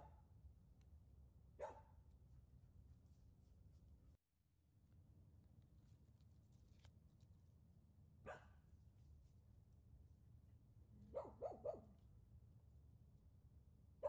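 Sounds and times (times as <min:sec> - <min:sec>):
dog barking: 0:01.6 - 0:02.0, 0:08.2 - 0:08.6, 0:11.0 - 0:12.0.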